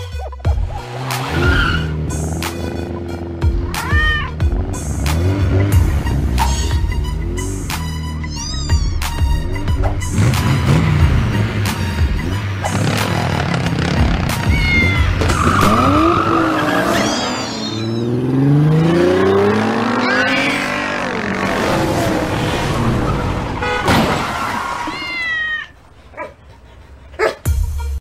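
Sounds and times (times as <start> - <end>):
engine revving: 0.4 - 8.3, 9.0 - 23.6.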